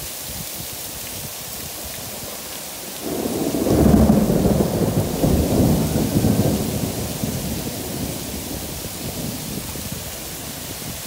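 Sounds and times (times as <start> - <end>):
heavy rain: 0.0 - 11.0
thunder rumbling: 2.1 - 11.0.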